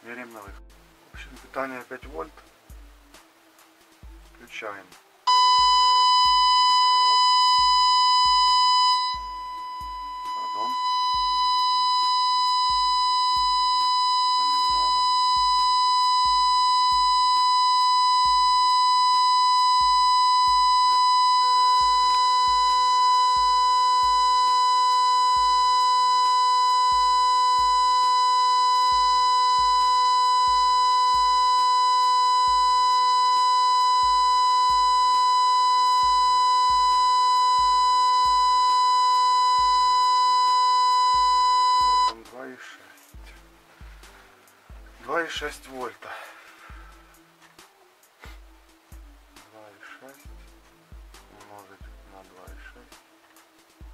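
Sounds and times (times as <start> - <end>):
high-pitched distorted test tone: 5.3 - 42.2.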